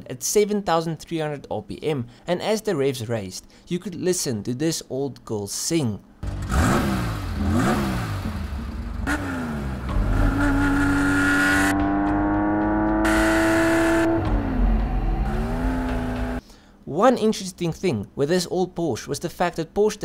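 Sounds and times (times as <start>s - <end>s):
car engine revving: 6.2s - 16.4s.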